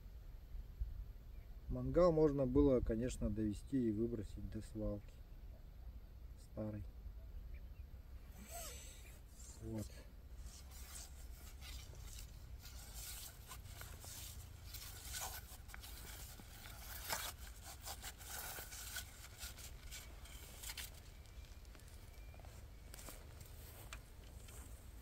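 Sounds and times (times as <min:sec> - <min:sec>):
rustling handling noise: 0:09.2 - 0:25.0.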